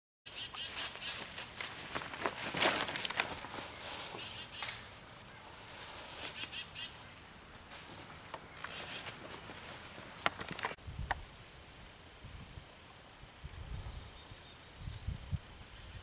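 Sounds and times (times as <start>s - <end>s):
dry leaves rustling: 0.3s - 11.4s
sharp clicks and snaps: 10.2s - 11.2s.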